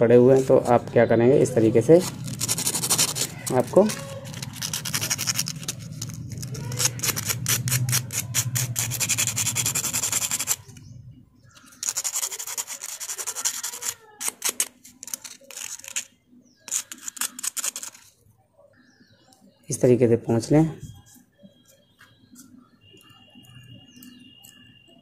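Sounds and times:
emery paper scratching steel: 1.7 - 10.8, 11.6 - 18.2.

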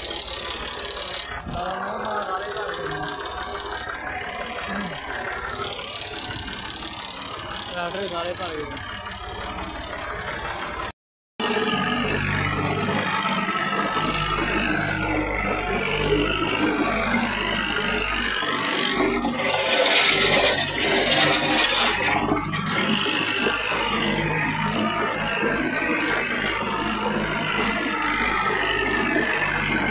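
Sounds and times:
rattling scraping mechanical din: 0.0 - 29.9
tractor engine running: 0.0 - 29.9.

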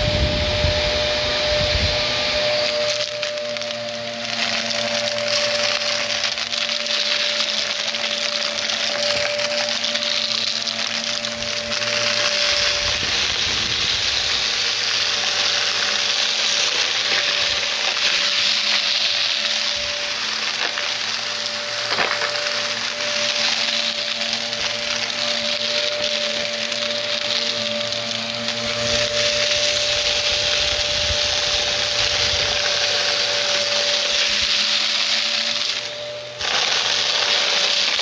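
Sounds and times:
vacuum cleaner running: 0.0 - 38.0
vacuum crackling on debris: 0.0 - 38.0.

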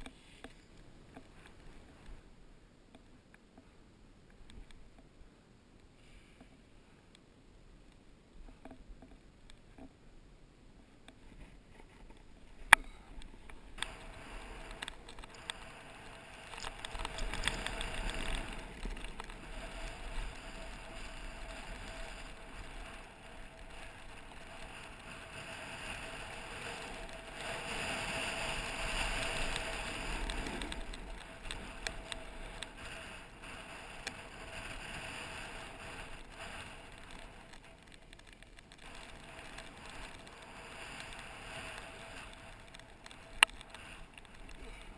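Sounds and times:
wind rushing over camera: 10.9 - 44.9
snowboard sliding over snow: 13.3 - 44.9.

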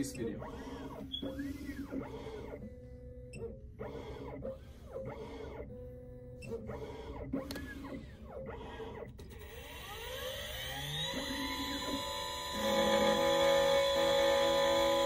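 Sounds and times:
steady machine hum: 0.0 - 15.0
key cutting machine whining: 8.8 - 15.0.

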